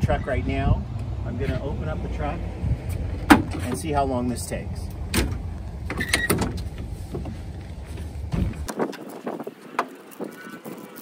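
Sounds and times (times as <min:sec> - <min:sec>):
tailgate dropping open: 0:03.2 - 0:03.8, 0:05.1 - 0:07.3.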